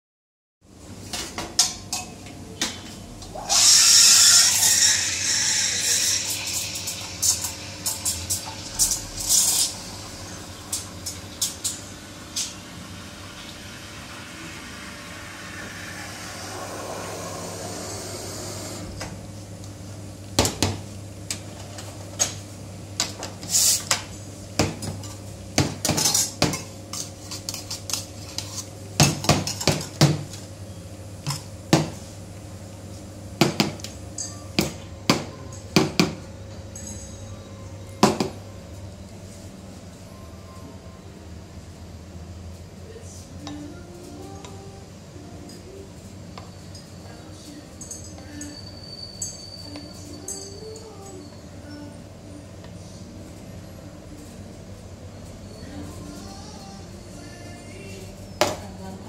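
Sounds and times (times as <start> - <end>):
espresso machine humming: 3.3 - 19.2
cups and metal parts clinking: 47.7 - 51.4.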